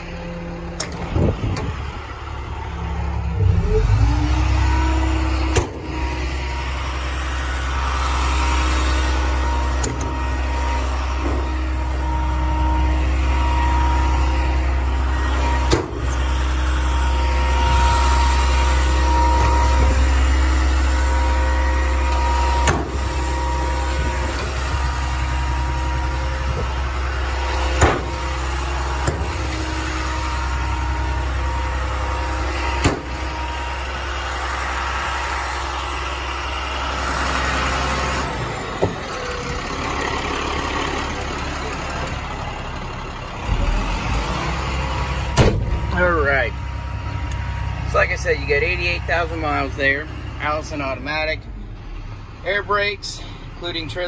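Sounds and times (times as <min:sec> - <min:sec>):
thin whine: 0:00.0 - 0:39.7
diesel engine running: 0:00.0 - 0:54.0
sharp knocks: 0:22.6 - 0:23.0, 0:27.8 - 0:28.1, 0:32.8 - 0:33.1.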